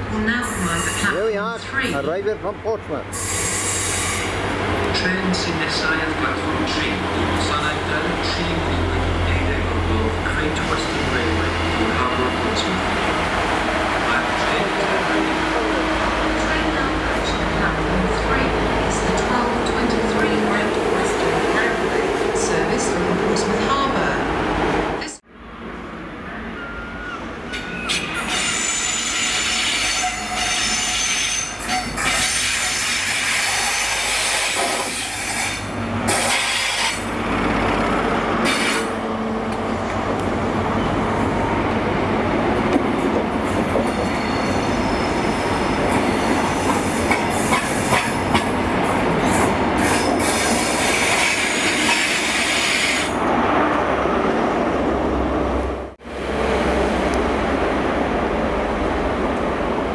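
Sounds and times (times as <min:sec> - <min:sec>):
diesel train running: 0:00.0 - 0:59.9
train wheels squealing: 0:26.5 - 0:32.8, 0:43.9 - 0:46.7.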